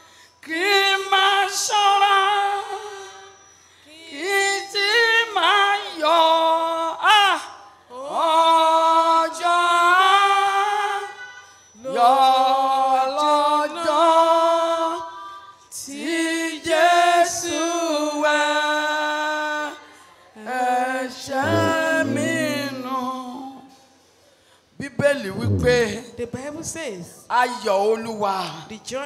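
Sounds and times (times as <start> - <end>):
person singing unaccompanied: 20.5 - 23.5, 25.2 - 26.0
low steady hum: 21.4 - 23.2, 25.4 - 26.1.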